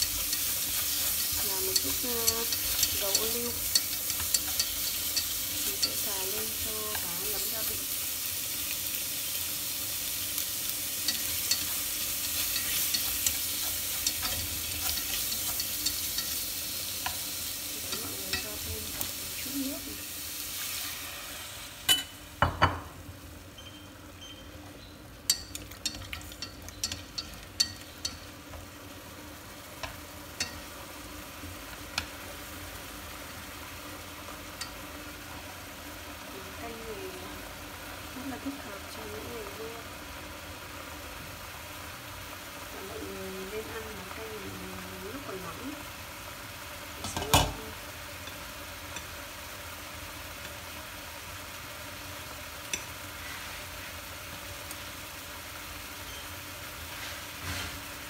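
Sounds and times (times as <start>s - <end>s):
chopsticks tapping and scraping pot: 0.0s - 7.5s, 11.1s - 16.4s, 25.3s - 28.3s
fish sizzling in hot oil: 0.0s - 58.0s.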